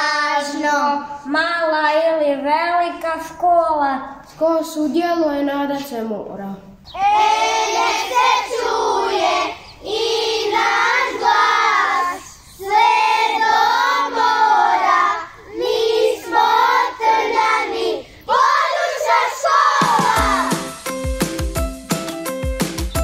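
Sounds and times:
children singing: 0:00.0 - 0:00.8, 0:07.0 - 0:20.7.

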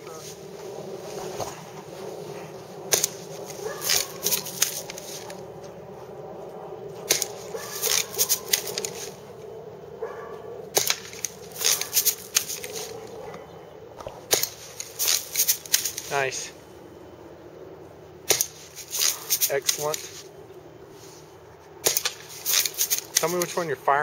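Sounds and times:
steady low hum: 0:00.0 - 0:24.0
bb gun clicks and snaps: 0:07.1 - 0:09.0, 0:10.8 - 0:12.9, 0:18.3 - 0:20.1, 0:21.8 - 0:23.6.

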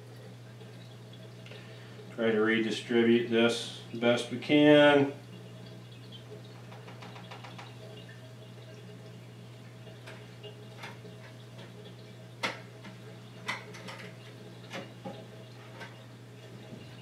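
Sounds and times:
steady low hum: 0:00.0 - 0:06.8.

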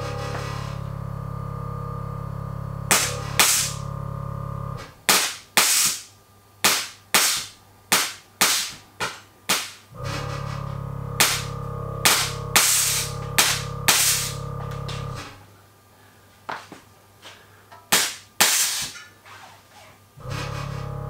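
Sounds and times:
air suspension hissing: 0:00.0 - 0:04.0, 0:10.0 - 0:15.4
steady low hum: 0:00.0 - 0:05.1, 0:09.9 - 0:17.8, 0:20.1 - 0:21.0.

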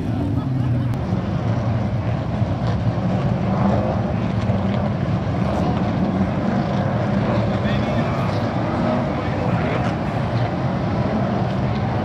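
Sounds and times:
stock car engines droning: 0:00.0 - 0:12.0.

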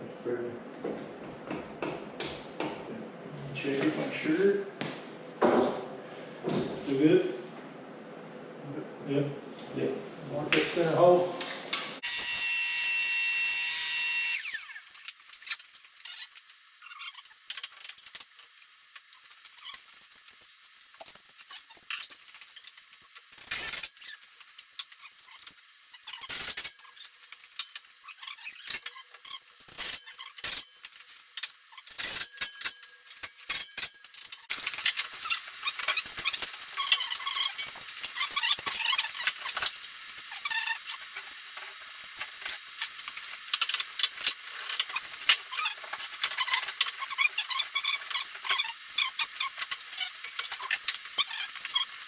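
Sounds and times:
cordless drill whining: 0:12.0 - 0:14.7.

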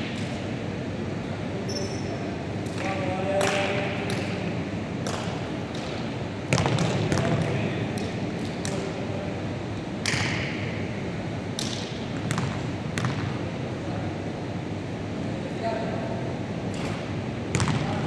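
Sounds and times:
basketballs bouncing on gym floor: 0:05.0 - 0:08.9, 0:11.6 - 0:13.4, 0:17.5 - 0:18.0.

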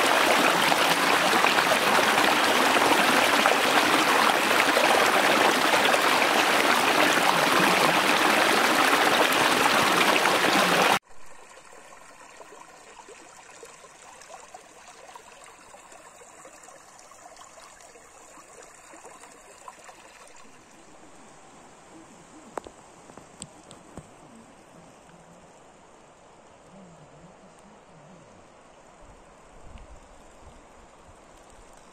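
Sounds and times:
stream rushing over stones: 0:00.0 - 0:21.6
creek trickling: 0:00.0 - 0:31.9
faint ticks: 0:22.5 - 0:25.4, 0:31.2 - 0:31.9.

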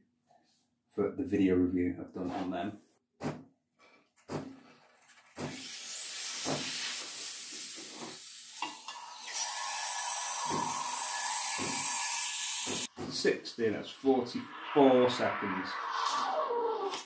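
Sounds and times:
steam wand hissing: 0:05.6 - 0:12.9
steady whistling tone: 0:13.8 - 0:17.0.

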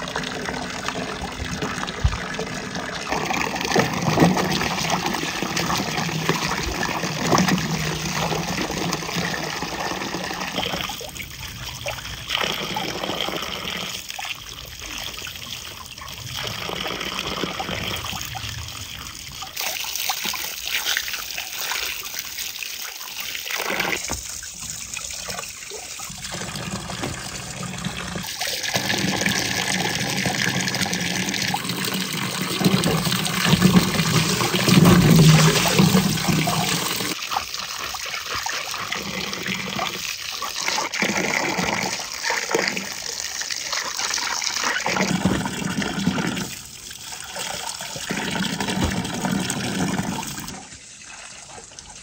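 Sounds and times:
water splashing in a metal basin: 0:00.0 - 0:52.0.

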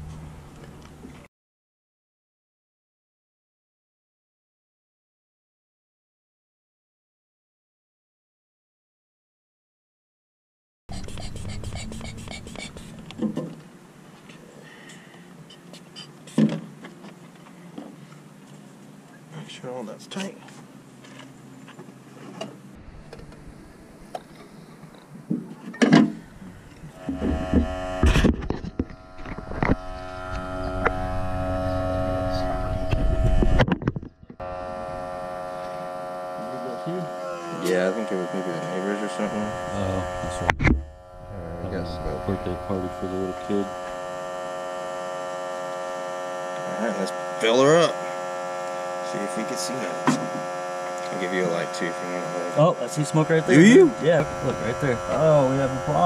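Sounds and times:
electric air pump humming: 0:10.9 - 0:13.4, 0:26.0 - 0:33.6, 0:34.4 - 0:56.0.

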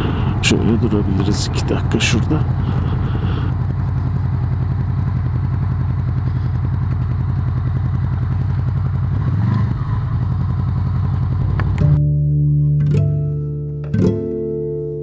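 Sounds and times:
motorcycle engine running: 0:00.0 - 0:12.0
plucked guitar music: 0:11.5 - 0:15.0.

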